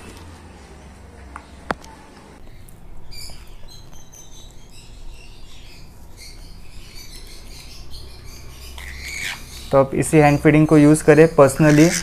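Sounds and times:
baby birds squeaking: 2.5 - 12.0.

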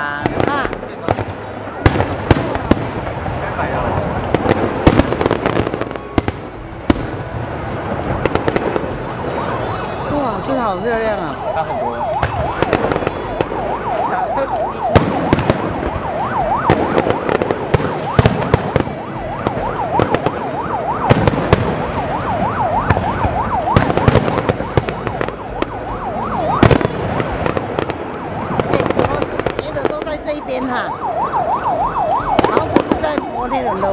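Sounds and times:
fireworks bursting with bangs: 0.0 - 33.9
warbling firework whistle: 8.1 - 27.9.

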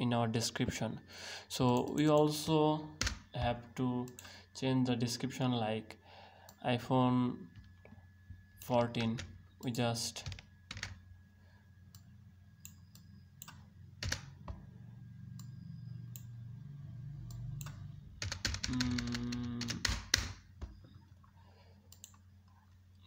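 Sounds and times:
low steady hum: 0.0 - 23.0
typing on computer keyboard: 10.2 - 11.0, 13.4 - 14.4, 17.6 - 20.8.

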